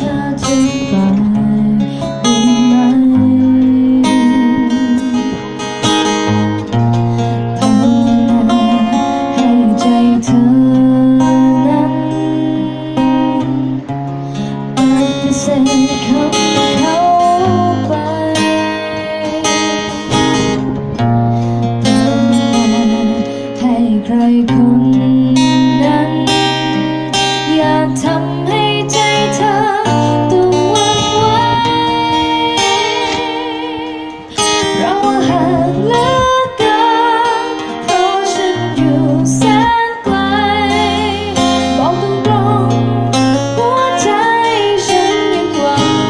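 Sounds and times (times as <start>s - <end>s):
person singing into a microphone: 0.0s - 21.0s, 21.6s - 46.0s
bass line: 0.0s - 26.8s
strummed acoustic guitar: 0.0s - 46.0s.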